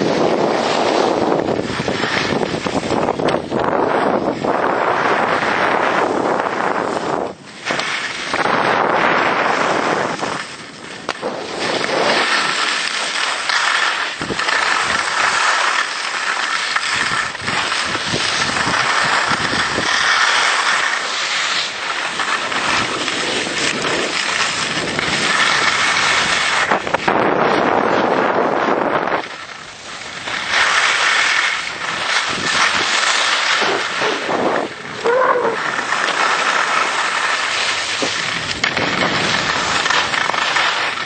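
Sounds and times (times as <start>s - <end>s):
wind buffeting microphone: 0.0s - 12.7s, 14.1s - 15.4s, 16.9s - 20.2s, 22.6s - 30.6s, 31.6s - 36.2s, 36.8s - 41.0s
skis scraping over snow: 0.0s - 41.0s.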